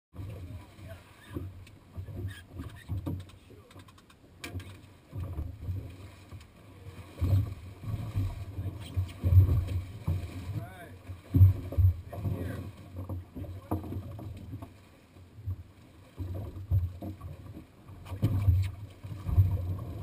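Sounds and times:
water slapping against boat hull: 0.1s - 20.0s
light clicks: 2.8s - 4.9s.

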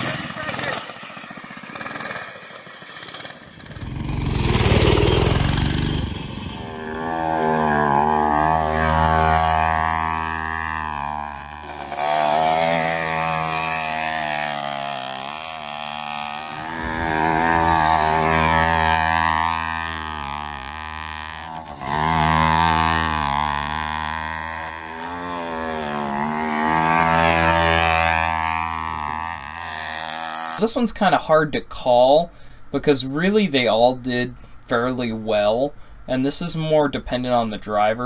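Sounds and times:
rough rushing noise: 0.0s - 30.2s
small two-stroke engine revving: 0.0s - 30.8s.

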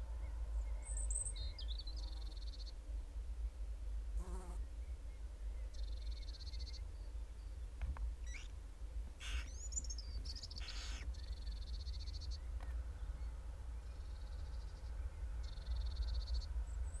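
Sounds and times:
owl chicks begging calls: 9.2s - 9.6s, 10.4s - 11.4s.

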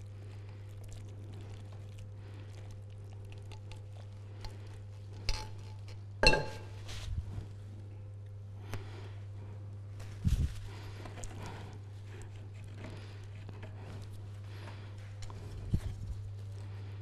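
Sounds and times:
low steady hum: 0.0s - 17.0s
cookware clinking: 6.2s - 6.8s.

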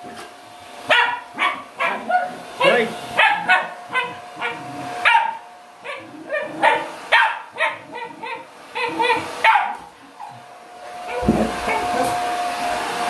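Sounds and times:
hair dryer: 0.0s - 13.0s
dog barking: 0.9s - 9.9s.

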